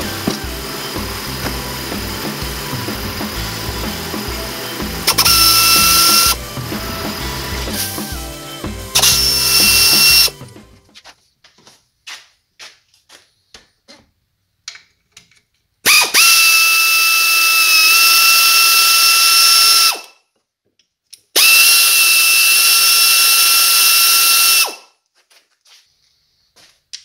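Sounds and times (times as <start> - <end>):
air ratchet whining: 0.0 - 10.8, 15.9 - 20.2, 21.2 - 24.9.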